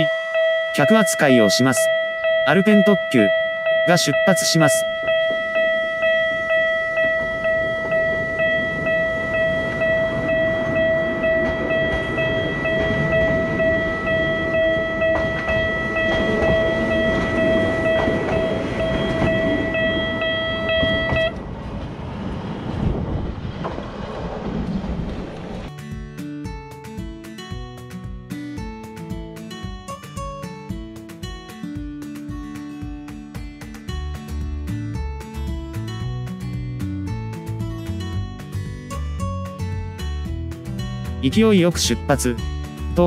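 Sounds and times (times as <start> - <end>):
level crossing bell ringing: 0.0 - 21.4
electric train rumbling: 0.0 - 25.7.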